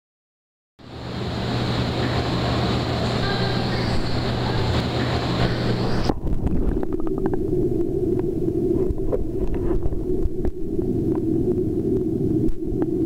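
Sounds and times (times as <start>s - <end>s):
hissy wash: 0.8s - 6.1s
low hum and rumble: 0.8s - 13.0s
muffled underwater noise: 1.6s - 13.0s.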